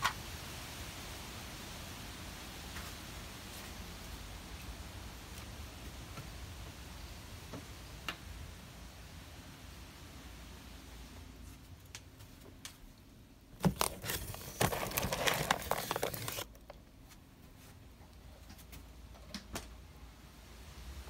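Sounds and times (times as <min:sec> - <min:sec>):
crinkling handling noise: 0:13.5 - 0:18.9.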